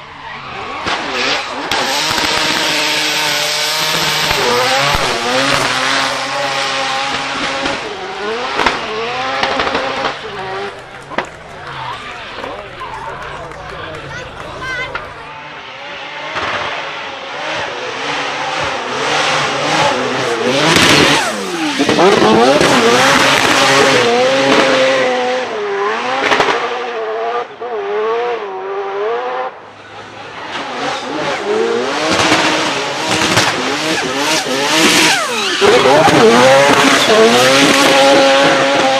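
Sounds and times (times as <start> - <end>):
rotary engine revving hard: 0.2 - 38.9
tyres squealing: 34.0 - 37.6.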